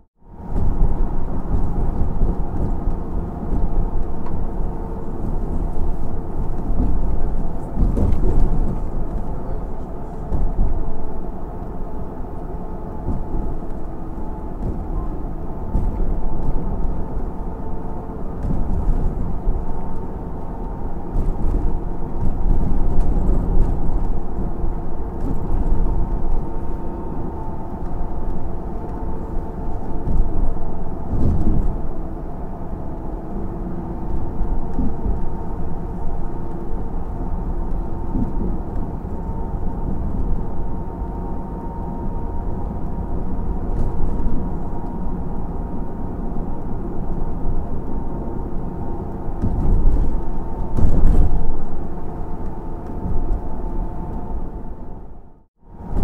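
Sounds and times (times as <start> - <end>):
vehicle rumble from inside: 0.0 - 56.0
knocks over bumps: 5.2 - 9.4.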